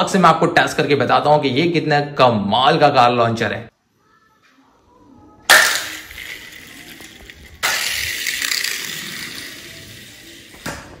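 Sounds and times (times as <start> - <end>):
plastic toy car rattling on tile: 5.5 - 10.7
toy launcher snapping: 5.5 - 10.9.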